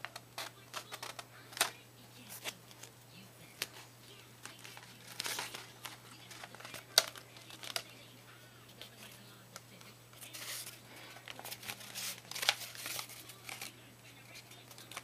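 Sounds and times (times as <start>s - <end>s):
wrapping crinkling and rustling: 3.6s - 8.1s, 10.1s - 15.0s.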